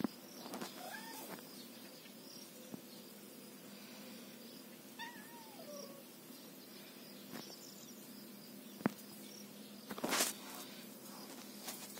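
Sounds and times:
kitten meowing: 5.0s - 6.0s
rustling scuffle: 9.9s - 11.9s.

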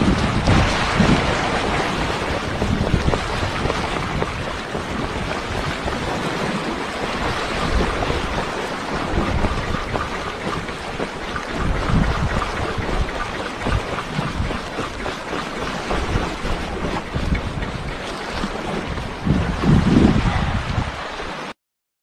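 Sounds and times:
sea waves splashing on rocks: 0.0s - 21.5s
wind gusting on microphone: 0.0s - 21.5s.

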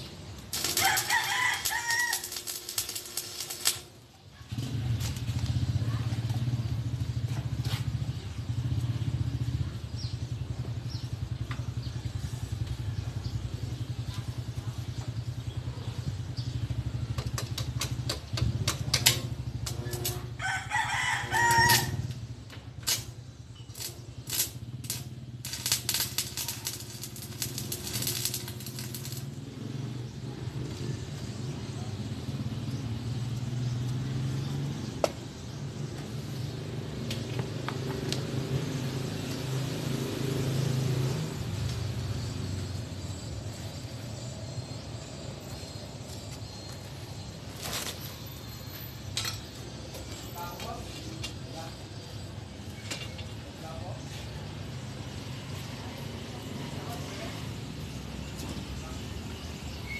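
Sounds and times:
arc welding hum: 0.0s - 5.4s, 17.1s - 31.3s
welding crackles: 0.0s - 8.1s, 17.1s - 31.4s, 45.6s - 53.9s
rooster crowing: 0.6s - 2.5s, 20.3s - 22.1s.

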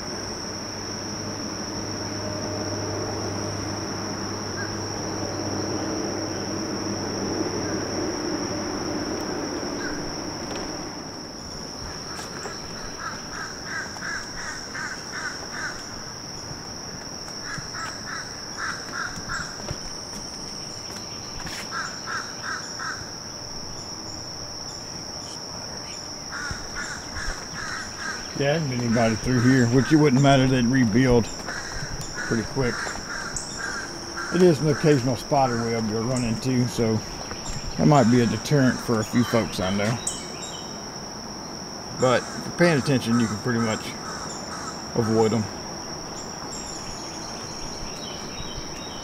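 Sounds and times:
insects shrilling: 0.0s - 49.0s
low steady hum: 0.0s - 49.0s
bird calling: 9.2s - 40.8s, 42.0s - 49.0s.

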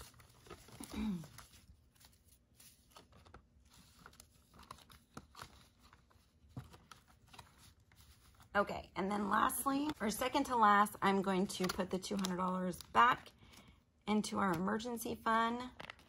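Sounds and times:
plastic envelope crackling: 0.0s - 8.5s, 11.4s - 13.3s, 15.6s - 16.0s
paper banknotes rustling: 0.0s - 8.6s, 9.2s - 13.7s.

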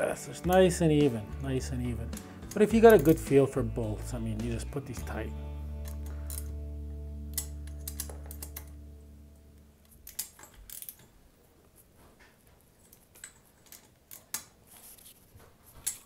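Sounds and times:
background music: 0.0s - 10.9s
wrench clicking on metal: 7.3s - 8.8s, 10.0s - 11.1s.

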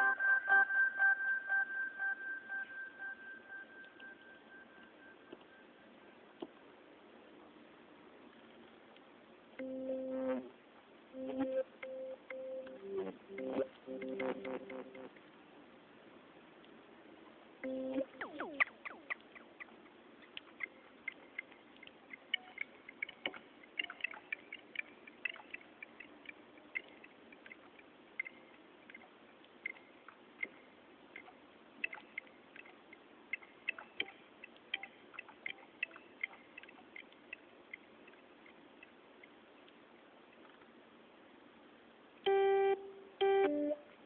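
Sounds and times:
synthesizer blips and clicks: 0.0s - 4.4s, 9.6s - 10.5s, 11.2s - 15.2s, 17.6s - 19.8s, 22.1s - 26.1s, 42.3s - 43.9s
faint steady hum: 0.0s - 44.0s.

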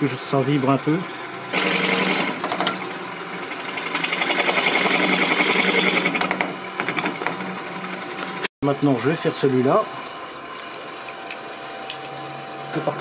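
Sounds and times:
lathe motor hum: 0.2s - 8.5s.

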